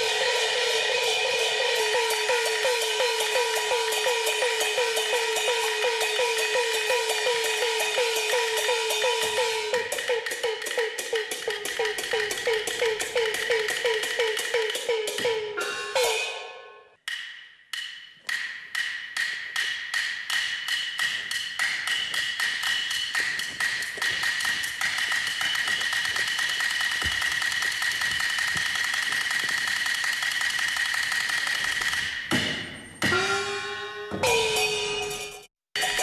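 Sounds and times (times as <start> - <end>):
ringing cymbal tones: 0.0 - 16.9
woodblock beats: 0.0 - 36.0.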